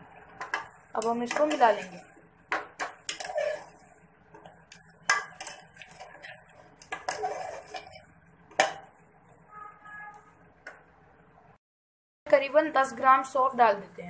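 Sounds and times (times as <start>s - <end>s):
metal spoon scraping a saucepan: 1.0s - 2.2s, 3.1s - 4.0s, 4.8s - 8.2s.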